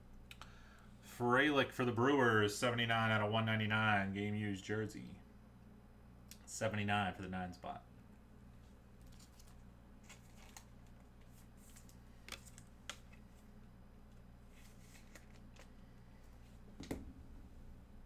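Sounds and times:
low steady hum: 0.0 - 18.0
trading cards flipping: 9.0 - 13.5, 14.1 - 15.8.

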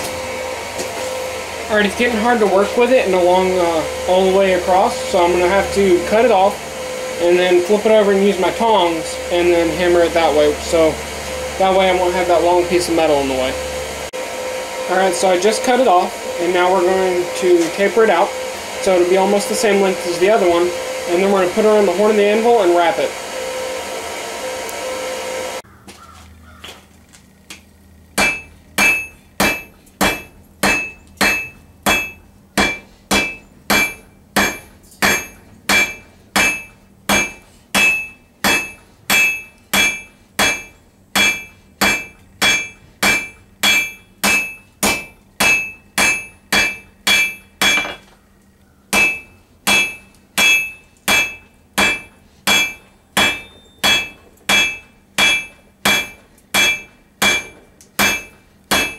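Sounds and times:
hammer striking steel on anvil: 28.2 - 48.1, 48.9 - 58.9.

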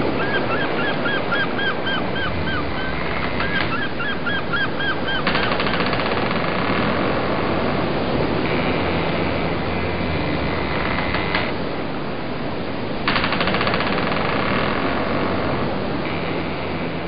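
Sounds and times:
repeated arched calls: 0.0 - 6.9
boat engine and water rushing: 0.0 - 17.0.

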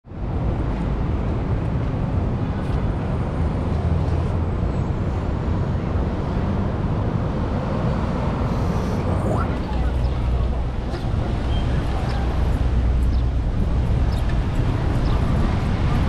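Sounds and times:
street traffic: 0.1 - 16.0
wind buffeting microphone: 5.9 - 16.0.

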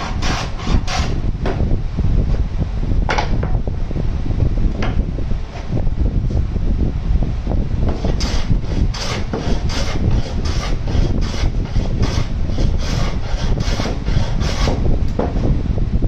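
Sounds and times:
hand plane shaving wood: 0.0 - 1.1, 7.9 - 14.8
steady low rumble: 0.0 - 16.0.

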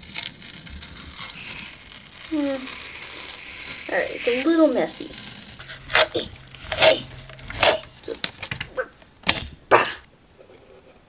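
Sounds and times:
tape peeling off: 0.0 - 9.7
handling noise: 5.2 - 9.7.

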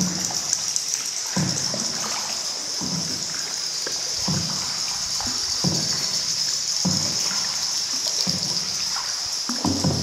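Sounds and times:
paddle splashing in water: 0.0 - 10.0
steady high-pitched hiss: 0.0 - 10.0.

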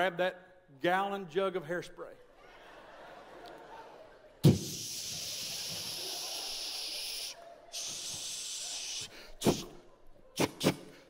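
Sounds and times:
man hissing into microphone: 4.4 - 9.8, 10.4 - 11.0.

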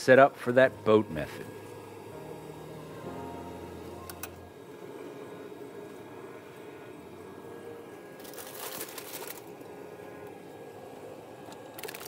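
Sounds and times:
aluminium foil crinkling: 8.2 - 9.7, 11.6 - 12.0.

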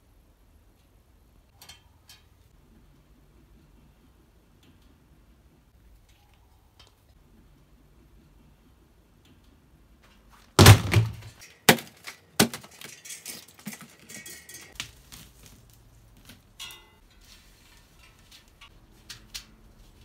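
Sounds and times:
bicycle wheel metal clanks: 1.5 - 2.5, 12.5 - 14.8, 16.4 - 19.6
metallic ringing rattle: 12.7 - 14.8.

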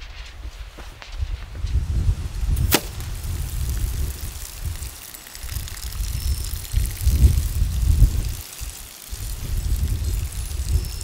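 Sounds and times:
wind rumbling on microphone: 0.0 - 11.0
arrow smacking plastic jug: 2.6 - 3.1
water trickling out: 2.6 - 11.0.

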